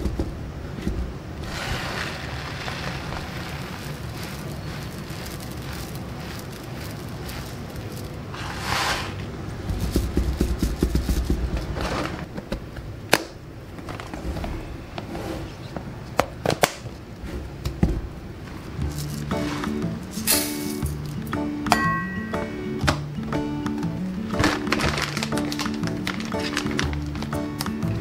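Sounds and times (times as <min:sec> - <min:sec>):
rice grains pouring into container: 0:01.4 - 0:09.2
grains rattling: 0:01.4 - 0:12.3, 0:18.8 - 0:21.3, 0:24.1 - 0:28.0.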